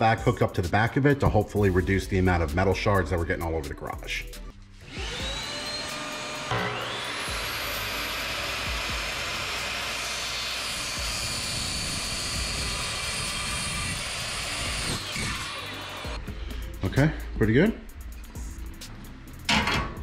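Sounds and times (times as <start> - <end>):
chop saw cutting aluminum: 4.8 - 16.2.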